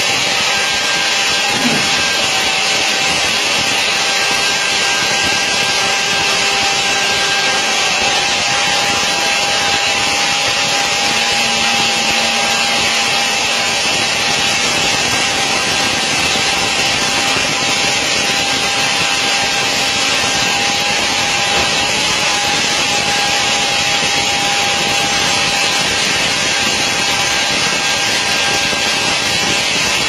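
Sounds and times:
aircraft machinery whine and rush: 0.0 - 30.0
constant high tone: 0.1 - 18.1.

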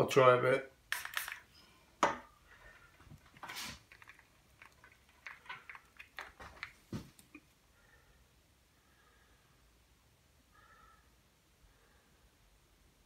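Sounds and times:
bottles and tools clicking: 0.9 - 7.4.

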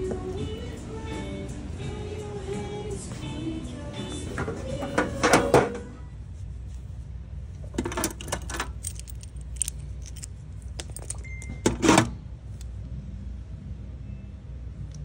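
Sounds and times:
metal tools rattling in toolbox: 7.6 - 12.1.

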